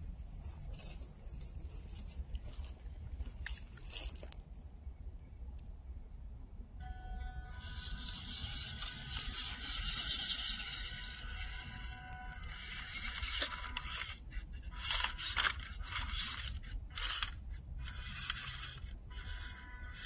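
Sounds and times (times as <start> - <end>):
toy truck electric motor: 7.5 - 20.0.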